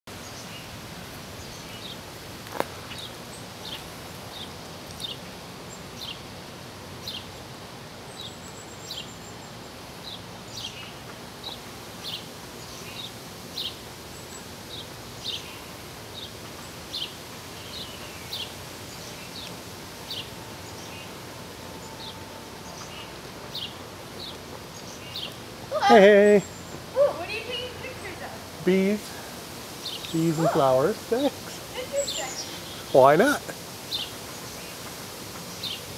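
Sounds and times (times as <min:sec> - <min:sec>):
steady background hiss: 0:00.1 - 0:35.9
bird chirping: 0:08.1 - 0:28.9, 0:29.8 - 0:35.9.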